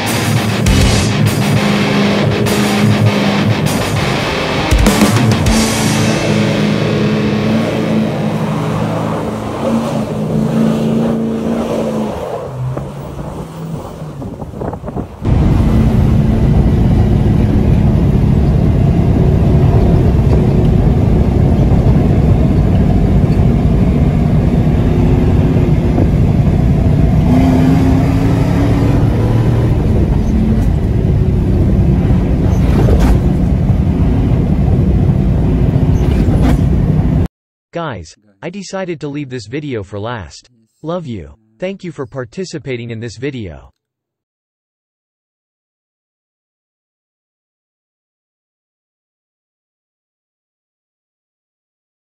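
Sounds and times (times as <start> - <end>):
rock music: 0.0 - 9.2
suv engine driving fast on dirt: 6.0 - 37.3.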